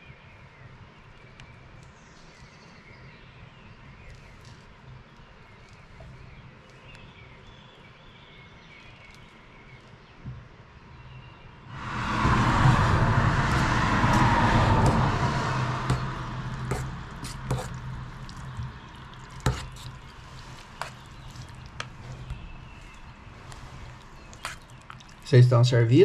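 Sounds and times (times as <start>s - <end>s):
steady low hum: 11.7s - 24.6s.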